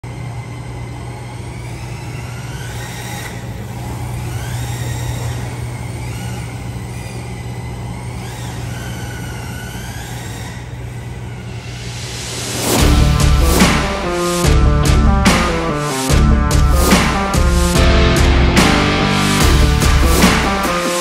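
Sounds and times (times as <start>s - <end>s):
electric motor whining: 0.0s - 21.0s
low hum: 11.2s - 21.0s.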